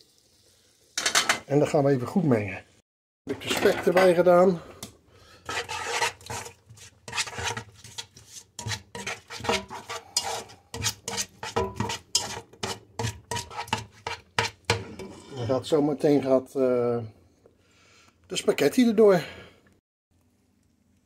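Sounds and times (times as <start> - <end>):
spatula scraping a pot: 3.3 - 15.7.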